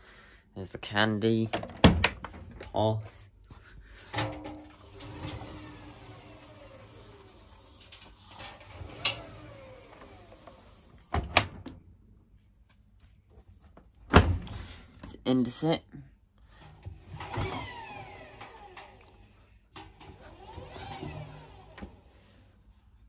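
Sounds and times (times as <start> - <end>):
washing machine drum whirring: 4.0 - 11.8, 16.6 - 22.7.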